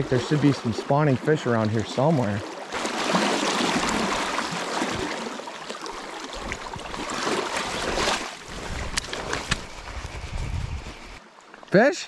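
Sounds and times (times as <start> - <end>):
river running over gravel: 0.0 - 10.3.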